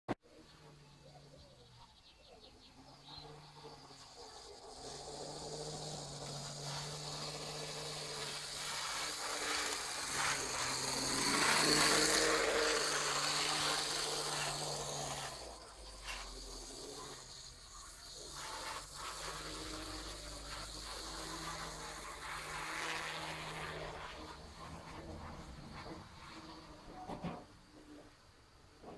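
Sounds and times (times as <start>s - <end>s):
model train motor hum: 0.3s - 28.0s
wheels rattling on rail: 2.7s - 26.7s.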